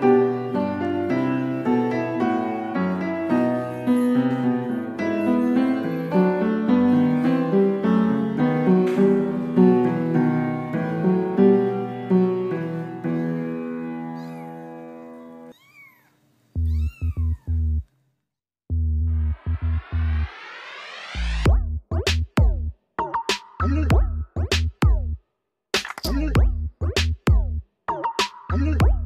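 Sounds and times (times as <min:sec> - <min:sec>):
gentle piano music: 0:00.0 - 0:15.5
kittens mewing: 0:14.1 - 0:17.8
deep electronic beat: 0:21.3 - 0:25.2, 0:25.9 - 0:29.0.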